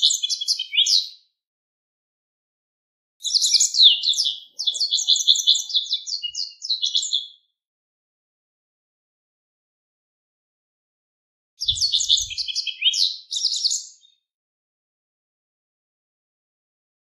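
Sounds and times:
bird singing: 0.0 - 1.2, 3.2 - 7.5, 11.6 - 14.2.

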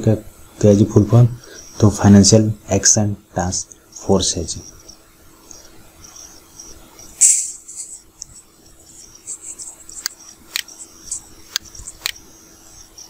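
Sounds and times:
low steady hum: 0.0 - 13.0
faint high ticks: 9.9 - 12.2
sharp clicks: 9.9 - 12.2.

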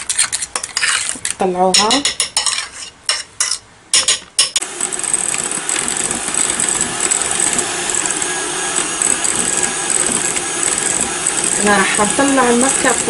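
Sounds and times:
electric hand mixer whipping: 4.6 - 13.0.

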